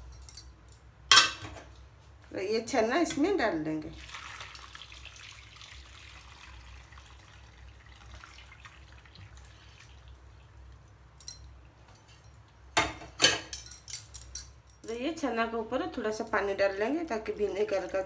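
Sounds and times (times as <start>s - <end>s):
liquid splashing and trickling: 3.9s - 11.0s.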